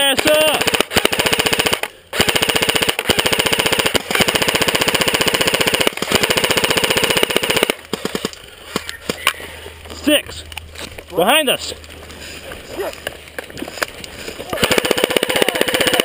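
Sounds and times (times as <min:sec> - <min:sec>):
airsoft rifles firing bursts: 0:00.0 - 0:09.2, 0:14.5 - 0:16.0.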